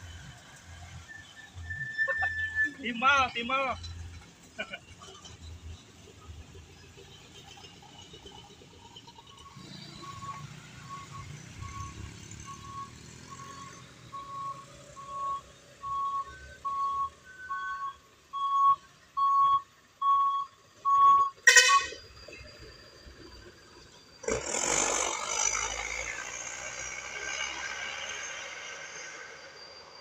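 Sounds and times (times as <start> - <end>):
bus warning beeps: 0.0 - 5.4, 9.2 - 24.0
bus rushing past: 3.9 - 30.0.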